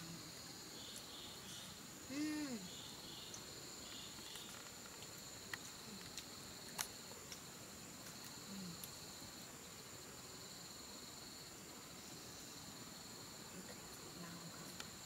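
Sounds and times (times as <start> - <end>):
insects droning: 0.0 - 15.0
person humming: 2.1 - 2.7.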